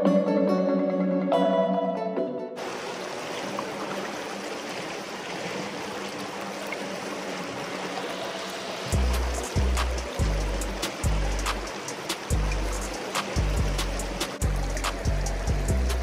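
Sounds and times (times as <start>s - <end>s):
river current rushing and rippling: 2.6s - 16.0s
music with deep bass: 8.9s - 16.0s.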